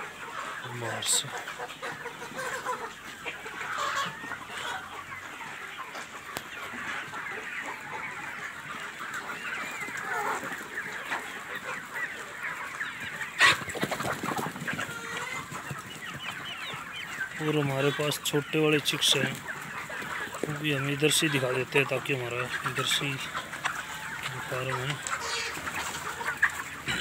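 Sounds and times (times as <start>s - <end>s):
hens clucking: 0.0s - 27.0s.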